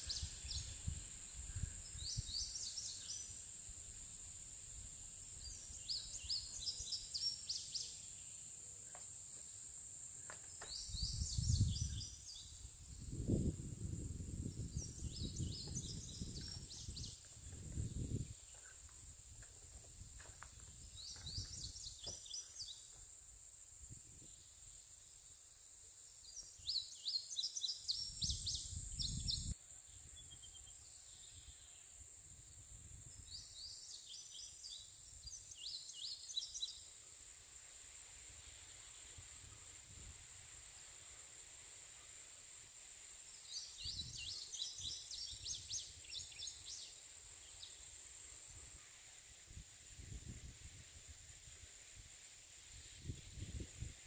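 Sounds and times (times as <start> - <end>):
insect drone: 0.0 - 54.0
wind rumble on microphone: 10.9 - 18.5, 28.1 - 29.6, 49.9 - 51.2, 52.9 - 54.0.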